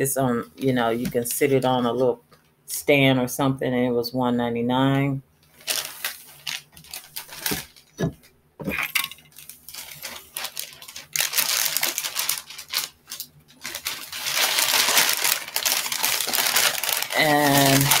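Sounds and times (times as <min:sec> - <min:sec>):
bag rustling and crinkling: 0:05.5 - 0:08.2, 0:08.8 - 0:18.0
items knocking and clinking: 0:07.4 - 0:09.4.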